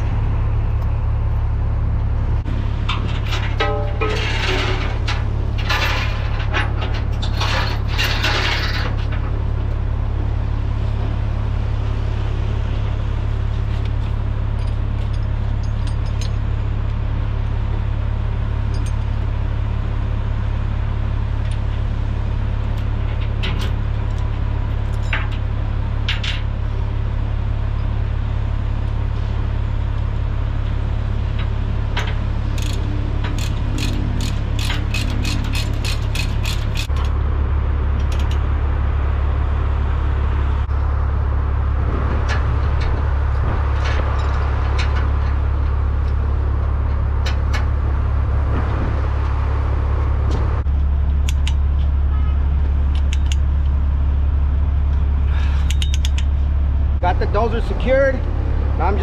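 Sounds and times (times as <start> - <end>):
steady low rumble: 0.0 - 59.0
steel chain clinking: 14.5 - 16.5, 32.6 - 37.1
ratchet binder clicking: 32.6 - 37.1.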